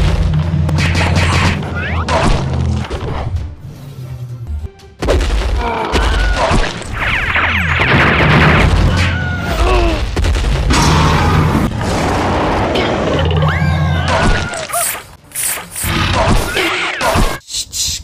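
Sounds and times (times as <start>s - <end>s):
crackling electric zaps: 14.6s - 15.9s.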